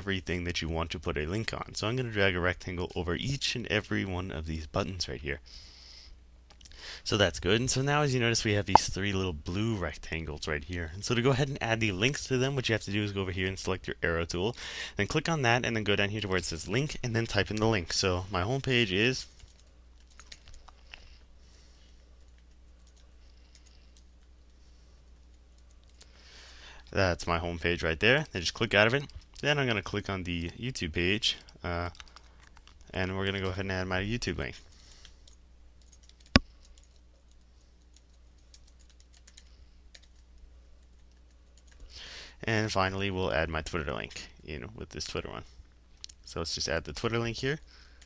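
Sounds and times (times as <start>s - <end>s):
low steady hum: 0.0s - 48.0s
typing on computer keyboard: 19.4s - 20.8s, 35.2s - 40.2s.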